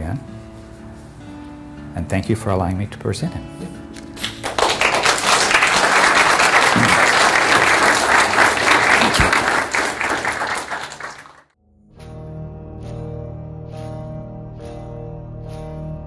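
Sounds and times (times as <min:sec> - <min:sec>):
audience applauding: 0:04.2 - 0:11.6.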